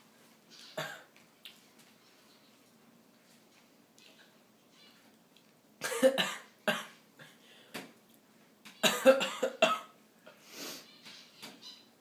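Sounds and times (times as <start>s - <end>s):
man coughing: 5.8s - 6.9s, 8.9s - 9.9s.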